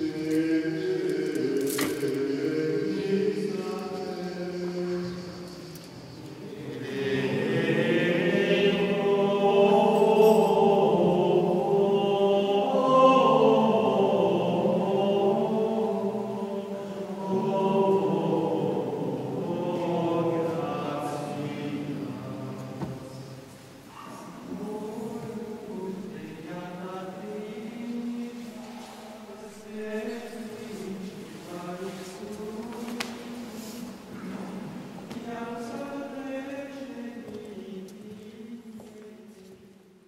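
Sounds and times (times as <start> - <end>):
men's voices chanting: 6.4 - 23.3.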